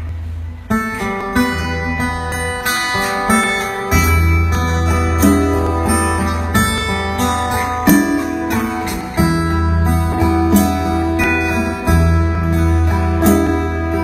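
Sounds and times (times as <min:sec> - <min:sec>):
acoustic guitars playing: 0:00.0 - 0:14.0.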